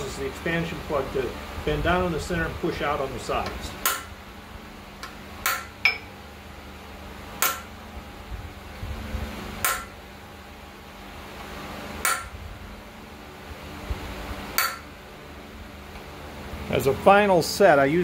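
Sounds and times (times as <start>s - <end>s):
hammer striking metal punch: 3.8s - 4.2s, 5.0s - 6.1s, 7.4s - 7.8s, 9.6s - 10.0s, 12.0s - 12.4s, 14.5s - 15.0s.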